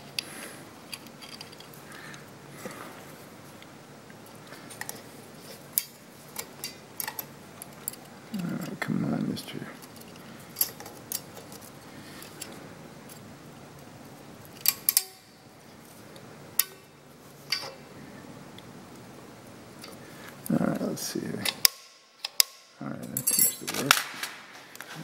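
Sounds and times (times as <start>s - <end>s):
small metal clicks and ticks: 5.7s - 8.8s, 14.4s - 15.3s, 16.2s - 16.9s.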